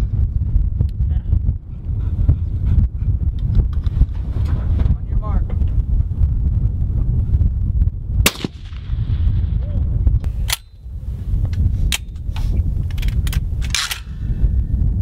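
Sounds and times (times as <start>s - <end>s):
wind rumble on microphone: 0.0s - 15.0s
gunshots: 8.2s - 9.4s.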